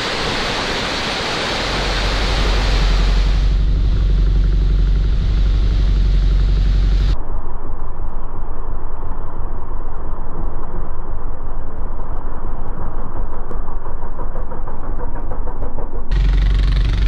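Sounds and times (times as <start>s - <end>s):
water rushing and splashing: 0.0s - 7.2s
quad engine running: 1.6s - 7.2s, 16.1s - 17.0s.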